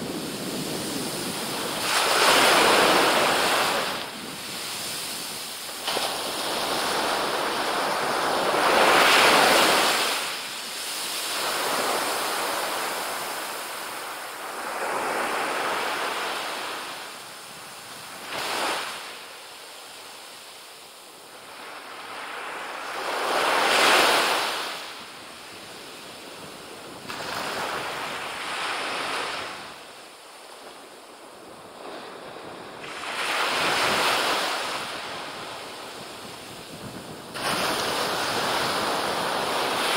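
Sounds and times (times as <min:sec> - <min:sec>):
waves breaking on beach: 0:00.0 - 0:39.9.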